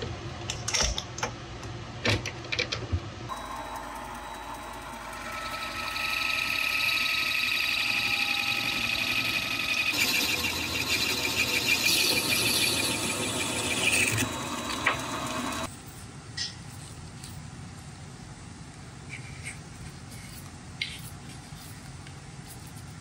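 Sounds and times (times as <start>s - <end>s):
metal lathe running: 3.3s - 15.7s.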